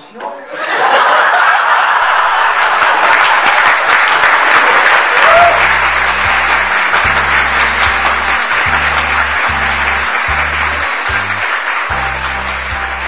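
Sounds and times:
audience applauding: 0.6s - 13.0s
background music with bass line: 5.4s - 13.0s.

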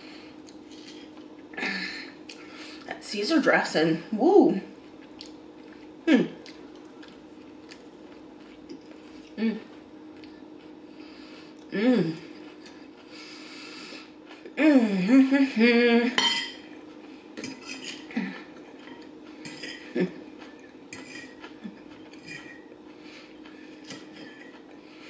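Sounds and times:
person humming: 6.1s - 6.4s, 9.4s - 9.7s, 11.7s - 12.3s, 14.6s - 16.2s
fork scraping on plate: 18.8s - 22.7s.

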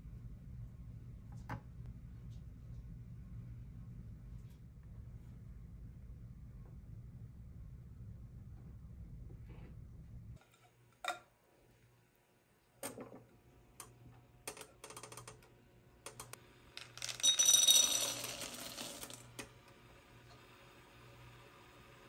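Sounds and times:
chocolate chips clattering on glass: 16.8s - 19.3s.

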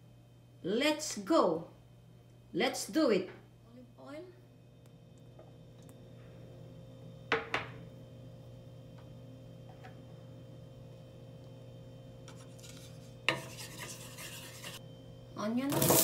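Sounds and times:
low steady hum: 0.0s - 16.0s
glass bowl scraping on pan: 12.3s - 14.8s.

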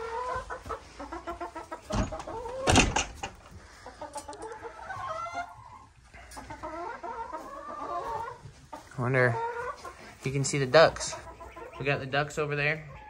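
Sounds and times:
hens clucking: 0.0s - 13.0s.

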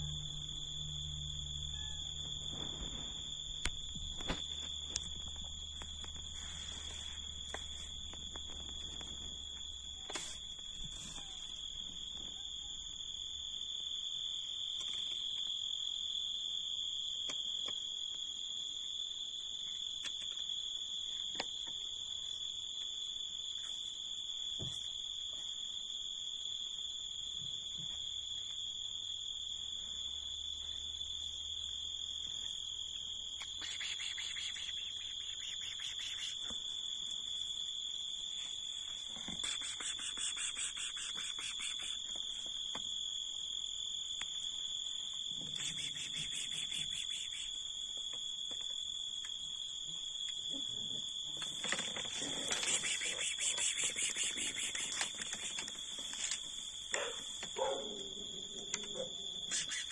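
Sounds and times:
steady high-pitched whine: 0.0s - 9.8s
insects rapid pulsed chirping: 0.0s - 17.1s, 28.2s - 59.9s
insect high-pitched trill: 0.0s - 59.9s
quick scratchy ticks: 33.4s - 36.5s, 39.3s - 42.1s, 45.5s - 47.5s, 52.5s - 57.0s, 59.5s - 59.9s.

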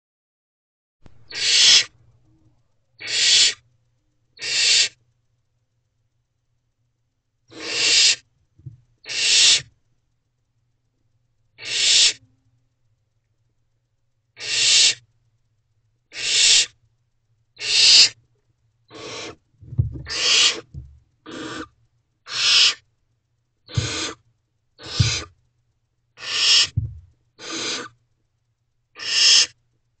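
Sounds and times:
owl chicks hissing calls: 1.3s - 2.0s, 3.0s - 3.6s, 4.4s - 5.0s, 7.5s - 8.3s, 9.0s - 9.7s, 11.6s - 12.2s, 14.4s - 15.0s, 16.1s - 16.8s, 17.6s - 18.2s, 18.9s - 19.4s, 20.0s - 22.8s, 23.7s - 24.2s, 24.8s - 25.4s, 26.2s - 28.0s, 28.9s - 29.6s
dull low thump: 8.6s - 8.8s, 19.6s - 20.1s, 20.7s - 21.0s, 23.8s - 24.0s, 25.0s - 25.3s, 26.7s - 27.1s.

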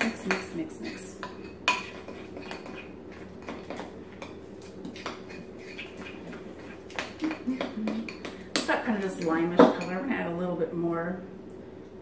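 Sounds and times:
spoon scraping bowl: 0.0s - 7.4s.

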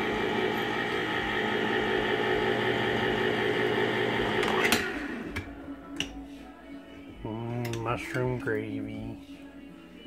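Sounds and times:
electric can opener motor humming: 0.0s - 5.5s.

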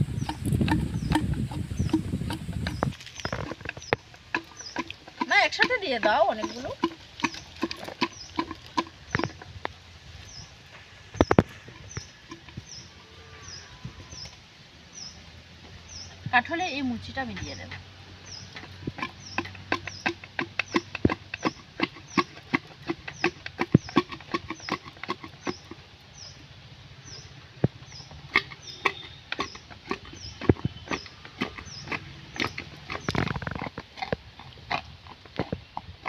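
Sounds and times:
pestle pounding in bamboo mortar: 0.0s - 9.6s, 11.2s - 12.7s, 18.4s - 25.8s, 27.7s - 36.0s.

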